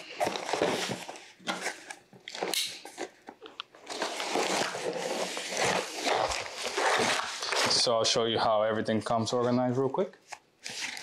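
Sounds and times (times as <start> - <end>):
cardboard rubbing and sliding: 3.9 - 7.9.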